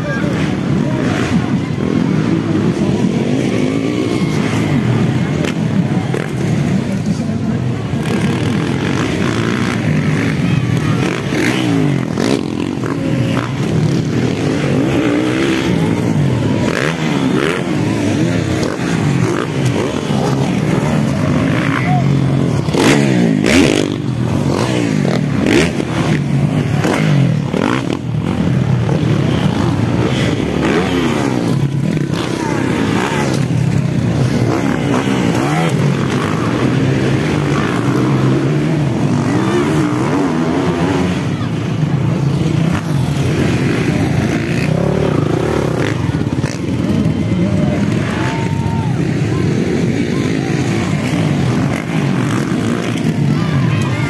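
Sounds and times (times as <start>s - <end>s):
motocross bike engines revving: 0.0s - 54.0s.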